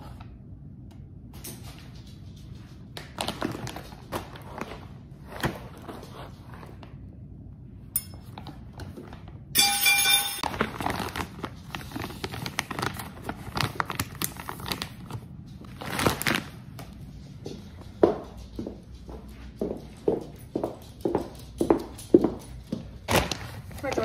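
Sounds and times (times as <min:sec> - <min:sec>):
plastic pouch crinkling: 0:10.4 - 0:16.7.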